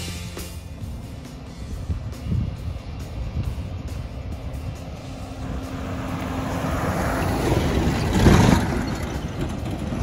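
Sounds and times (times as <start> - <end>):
vehicle road noise: 0.0 - 10.0.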